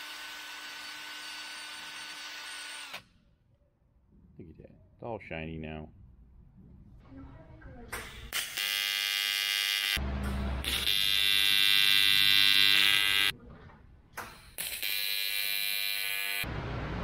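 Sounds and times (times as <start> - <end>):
welding arc buzzing: 8.3 - 10.0, 10.6 - 13.3, 14.3 - 16.5.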